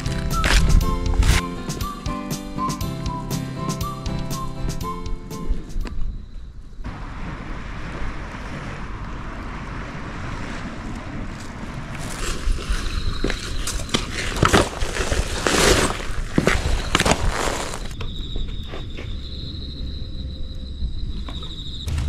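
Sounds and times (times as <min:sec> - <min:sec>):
wind rushing: 0:06.8 - 0:13.3.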